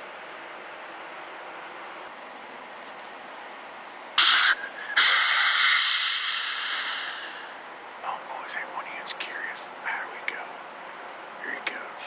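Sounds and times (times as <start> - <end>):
deer snort-wheeze call: 4.2 - 7.6.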